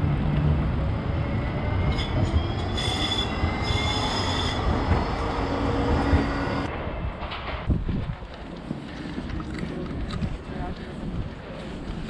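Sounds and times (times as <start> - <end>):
tram rumbling past: 0.0 - 12.0
steel wheels squealing on rails: 1.1 - 6.7.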